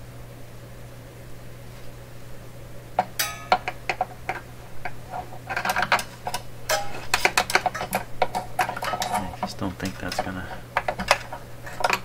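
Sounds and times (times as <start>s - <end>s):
screwdriver scraping metal chassis: 3.5s - 12.0s.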